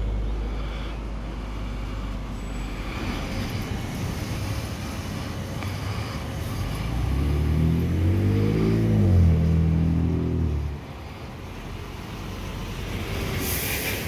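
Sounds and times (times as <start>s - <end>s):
road traffic noise: 0.0s - 14.0s
vehicle engine hum: 0.0s - 14.0s.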